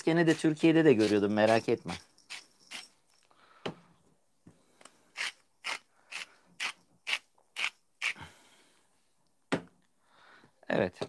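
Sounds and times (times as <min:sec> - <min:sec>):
spice grinder grinding: 0:00.0 - 0:03.2, 0:05.1 - 0:08.2.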